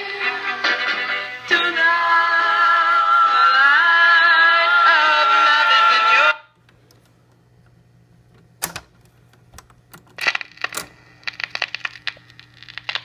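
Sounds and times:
steady low hum: 0:06.5 - 0:13.0
record changer clicking and clattering: 0:08.3 - 0:13.0.

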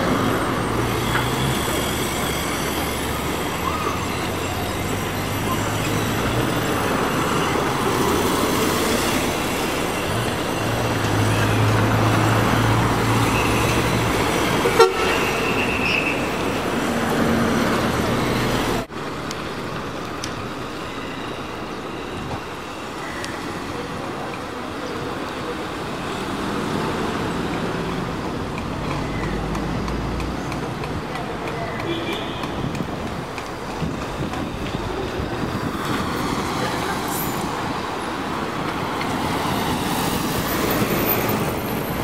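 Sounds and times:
vehicles passing: 0:00.0 - 0:42.0
car horn toot: 0:14.6 - 0:16.3, 0:31.8 - 0:32.6.

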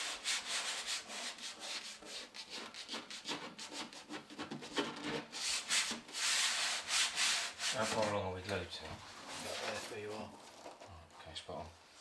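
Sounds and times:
hand rubbing vinyl on panel: 0:00.0 - 0:08.2.

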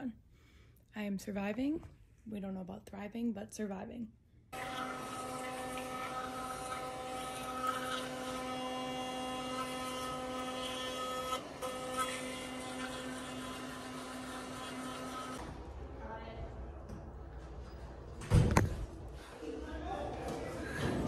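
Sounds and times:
electric toothbrush buzzing: 0:04.6 - 0:15.4.

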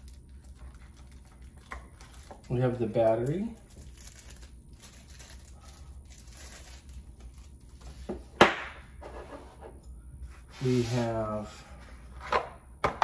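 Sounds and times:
plastic packaging crinkling: 0:00.0 - 0:07.9.

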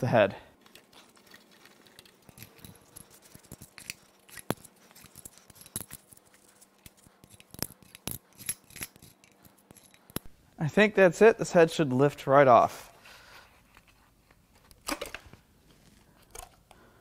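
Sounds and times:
metal bolts clinking together: 0:02.0 - 0:10.3.

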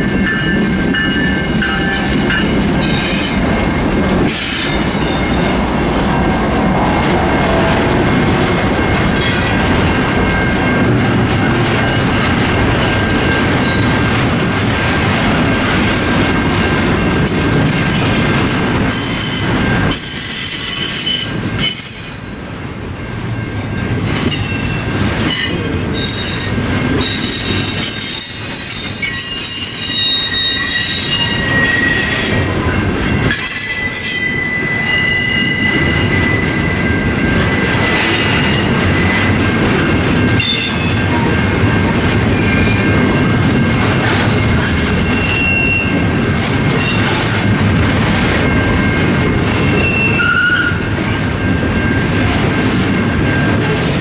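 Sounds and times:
freight cars rumbling: 0:00.0 - 0:28.8, 0:29.5 - 0:54.0
train wheels squealing: 0:18.9 - 0:22.6, 0:23.4 - 0:39.5, 0:40.2 - 0:43.3, 0:44.3 - 0:46.0, 0:48.1 - 0:53.9.

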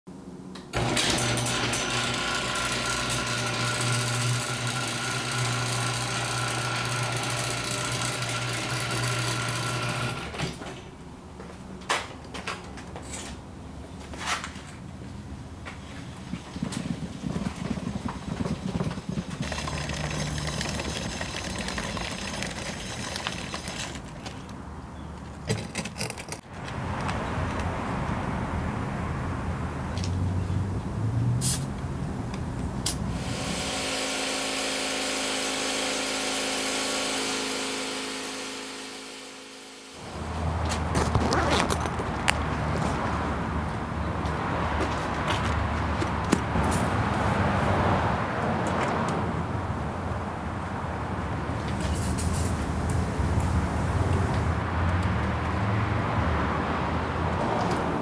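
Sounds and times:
motor-driven machine running: 0:00.8 - 0:10.4, 0:19.2 - 0:24.0, 0:33.1 - 0:40.3.

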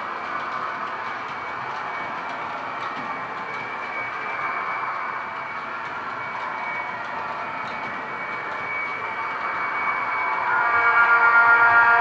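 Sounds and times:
thin high whine: 0:03.1 - 0:12.0.

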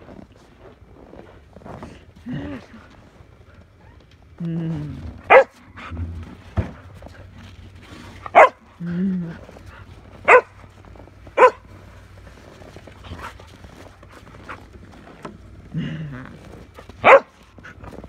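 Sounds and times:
dog barking sharply: 0:05.3 - 0:05.5, 0:08.4 - 0:08.6, 0:10.3 - 0:10.5, 0:17.0 - 0:17.3.

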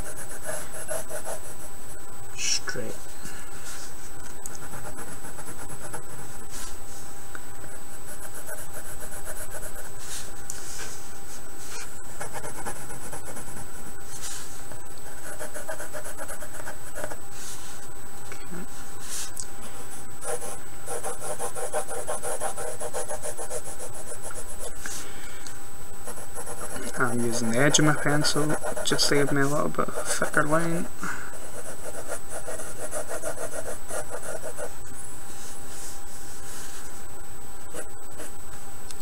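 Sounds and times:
pencil scratching on paper: 0:00.0 - 0:01.7, 0:04.6 - 0:06.7, 0:08.0 - 0:11.0, 0:11.6 - 0:13.6, 0:14.2 - 0:17.6, 0:20.2 - 0:24.7, 0:26.1 - 0:30.6, 0:31.4 - 0:34.7
steady high whine and hiss: 0:00.0 - 0:39.0.

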